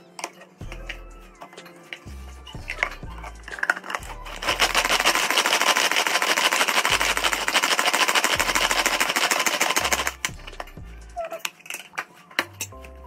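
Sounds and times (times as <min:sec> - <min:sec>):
food chopper whirring clatter: 0:03.7 - 0:10.3.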